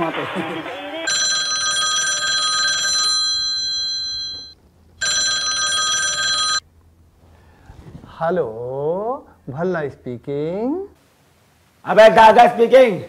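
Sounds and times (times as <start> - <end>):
mobile phone ringing: 1.0 - 6.7.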